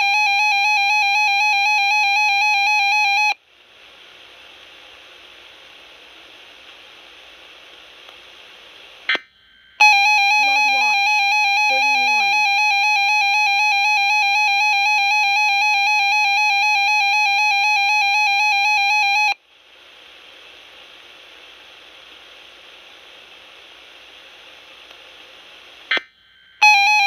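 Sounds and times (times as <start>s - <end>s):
faint speaker hiss: 3.3s - 12.8s, 19.4s - 26.9s.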